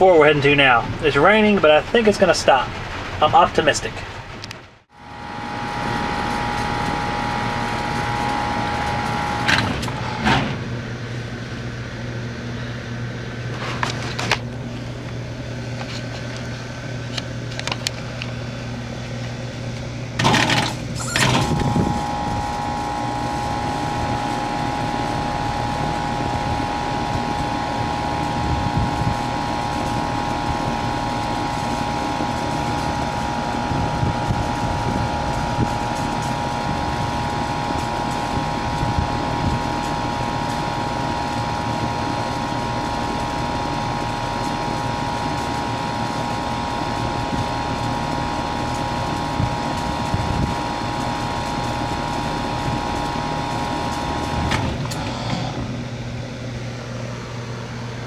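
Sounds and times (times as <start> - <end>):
air conditioner humming: 0.0 - 58.0
compressor high tone: 4.9 - 11.5, 20.1 - 58.0
loud clunk: 9.5 - 10.8.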